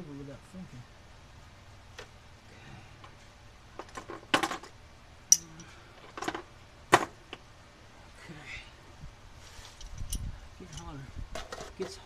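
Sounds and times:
tools and metal parts clinking: 0:05.3 - 0:06.4, 0:09.7 - 0:12.0.

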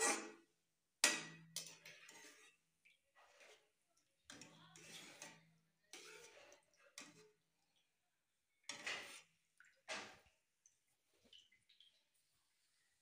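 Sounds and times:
metal skimmer scraping a pan: 0:00.0 - 0:02.6, 0:03.2 - 0:03.7, 0:04.3 - 0:07.4, 0:08.7 - 0:10.2.

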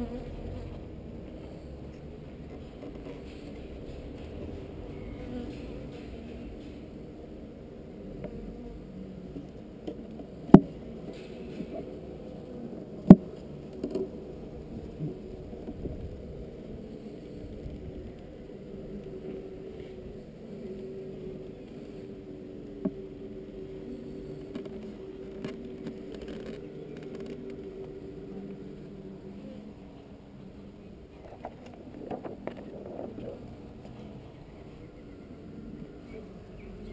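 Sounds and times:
honeybees humming: 0:00.0 - 0:36.9.

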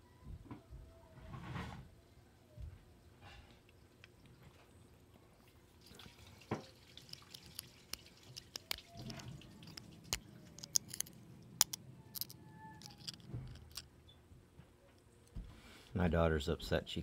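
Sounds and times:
light metal scraping: 0:06.5 - 0:13.9.

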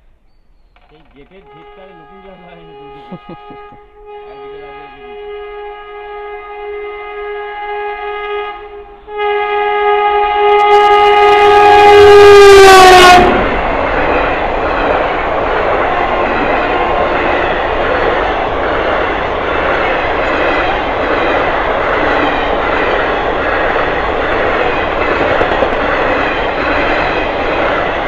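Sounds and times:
locomotive horn blast: 0:01.4 - 0:13.6
train coaches rushing rattle: 0:13.1 - 0:28.0.

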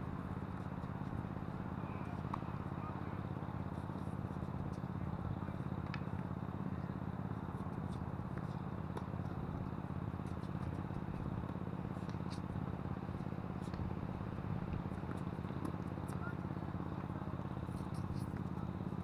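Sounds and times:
tennis balls struck by rackets: 0:14.7 - 0:16.4.

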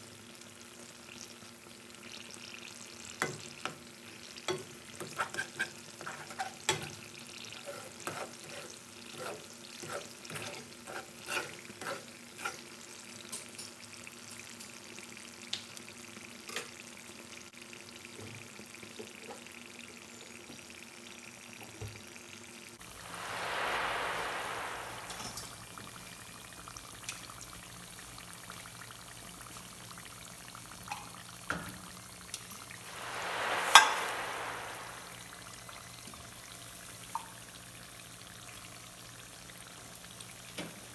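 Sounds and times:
bananas frying in oil: 0:00.0 - 0:23.1.

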